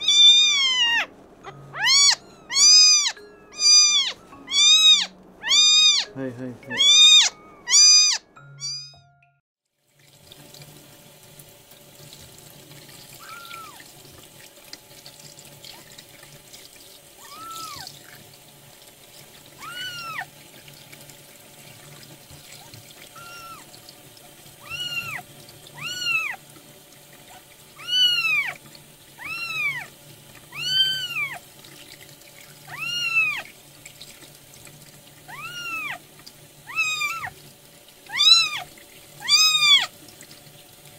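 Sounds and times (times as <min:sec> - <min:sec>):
tap water running: 0:00.0 - 0:08.2, 0:09.7 - 0:40.9
kitten mewing: 0:00.0 - 0:08.9, 0:19.6 - 0:20.3, 0:24.6 - 0:25.2, 0:27.8 - 0:28.6, 0:35.3 - 0:36.0, 0:36.7 - 0:37.3, 0:38.1 - 0:39.9.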